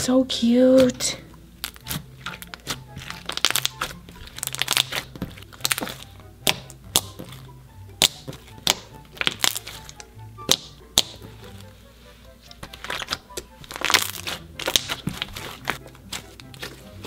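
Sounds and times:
soft background music: 0.0 - 17.0
slime popping and clicking: 1.6 - 7.4, 8.0 - 11.3, 12.6 - 15.5.

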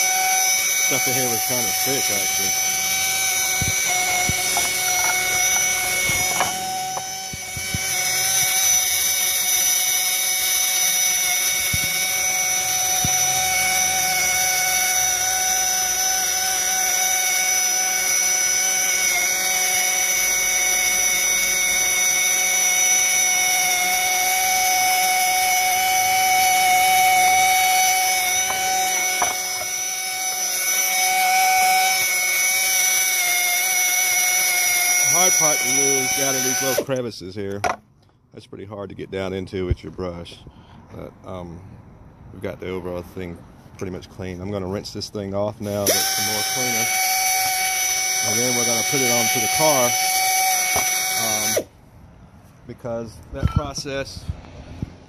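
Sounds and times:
power tool rotary brush whine: 0.0 - 37.0, 45.6 - 51.7.

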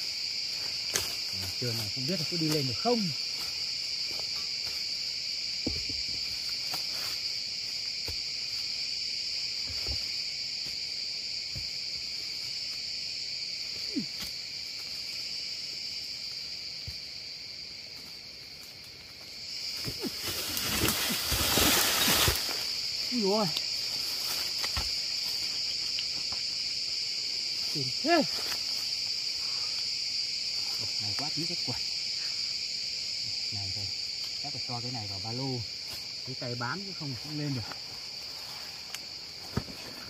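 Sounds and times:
forest insects droning: 0.0 - 40.0
rustling through dry leaves: 20.0 - 25.8.

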